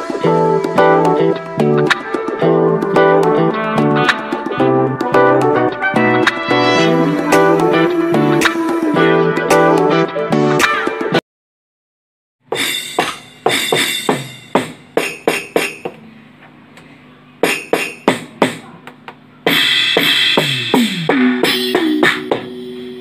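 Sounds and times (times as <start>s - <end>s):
electronic drum hits: 0.0s - 9.7s, 12.5s - 16.0s, 17.4s - 18.7s, 19.5s - 23.0s
held electronic tone: 21.4s - 23.0s.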